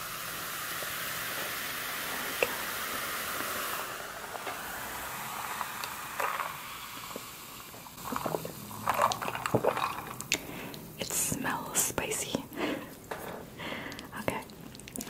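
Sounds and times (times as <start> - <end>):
drink pouring into metal mug: 0.5 - 11.1
sipping through a straw: 0.8 - 10.9.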